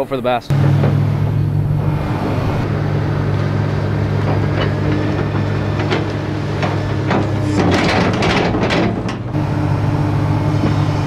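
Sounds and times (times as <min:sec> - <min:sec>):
excavator diesel engine running: 0:00.5 - 0:11.0.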